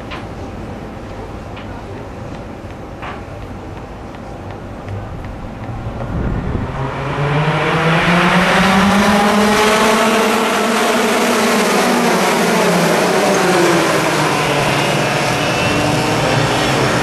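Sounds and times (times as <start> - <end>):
racing kart engines accelerating: 4.8 - 17.0.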